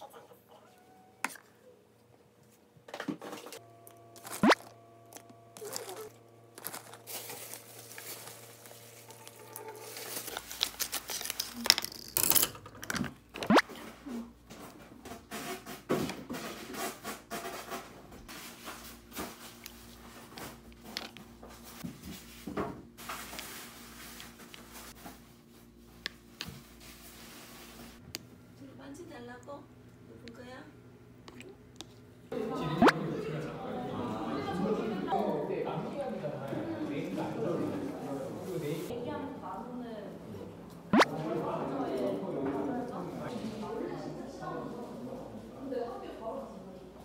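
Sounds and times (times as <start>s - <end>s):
squishing and scraping: 5.6s - 11.8s
packaging rustling and tearing: 5.6s - 12.4s.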